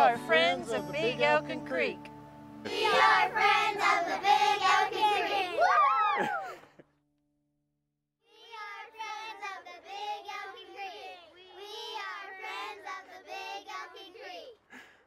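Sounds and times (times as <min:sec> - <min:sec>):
children singing: 0:02.6 - 0:05.6, 0:08.4 - 0:14.3.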